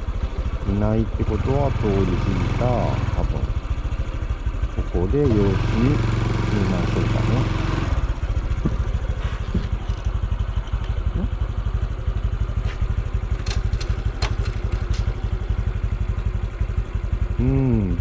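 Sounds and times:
motorcycle engine idling: 0.0 - 18.0.

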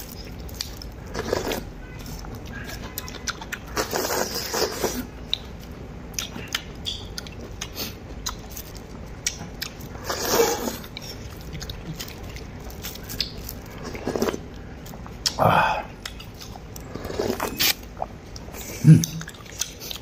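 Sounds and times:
chewing: 0.0 - 15.4, 16.0 - 20.0
person slurping from a bowl: 10.0 - 10.8.

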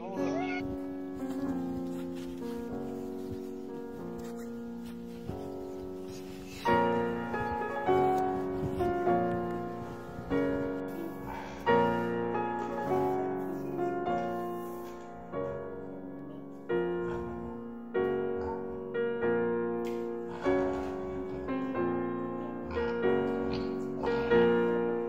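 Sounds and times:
slow piano chords: 0.0 - 25.0.

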